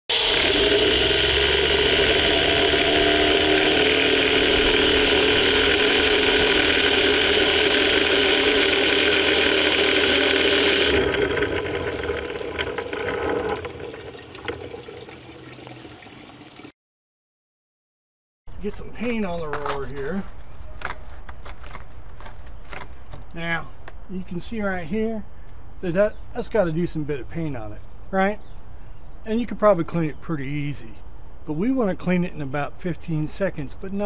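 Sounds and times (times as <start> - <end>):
roller spinning whirring hum: 0.1 - 15.7.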